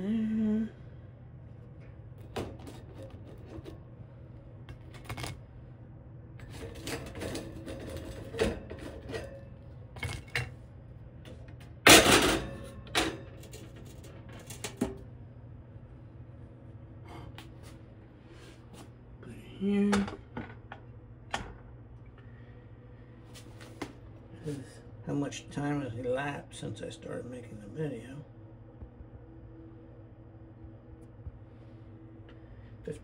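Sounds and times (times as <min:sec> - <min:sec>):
utensil clattering on wire rack: 0:06.4 - 0:10.5.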